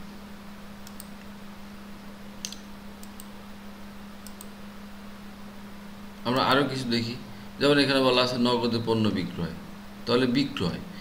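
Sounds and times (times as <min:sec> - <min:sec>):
electrical hum and hiss: 0:00.0 - 0:11.0
computer clicks: 0:00.8 - 0:01.3, 0:02.4 - 0:03.4, 0:04.2 - 0:04.6.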